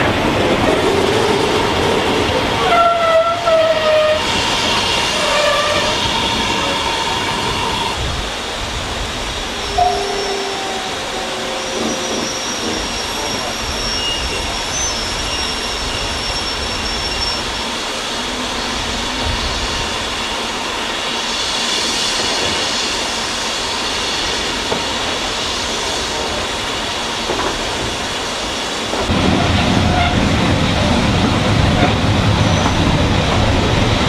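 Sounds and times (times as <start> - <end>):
railway carriage rolling on track: 0.0 - 34.0
wind gusting on microphone: 3.5 - 34.0
faint high-pitched squeals: 9.6 - 17.5.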